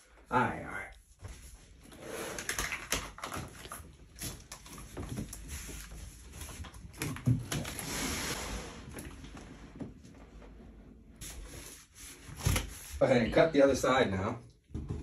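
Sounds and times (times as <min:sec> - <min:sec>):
cardboard box scraping and rubbing: 0:07.7 - 0:08.8.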